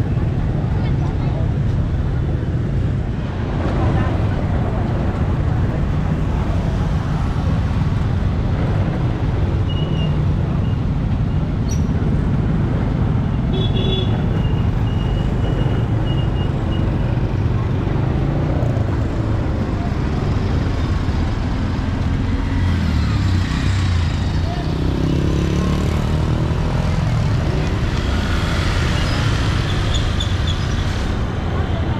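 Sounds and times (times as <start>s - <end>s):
traffic engines rumbling: 0.0s - 31.9s.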